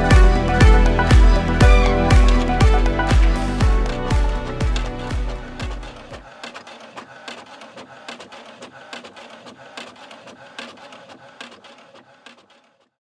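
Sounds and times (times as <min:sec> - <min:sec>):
soft clicking and scratching: 0:04.7 - 0:12.9.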